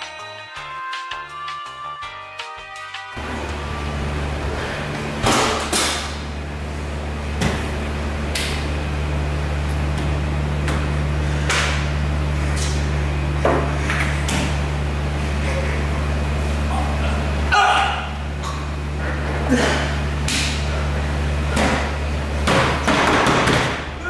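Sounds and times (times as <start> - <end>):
steady low hum: 3.2 - 24.0
stall doors knocking and banging: 21.6 - 24.0.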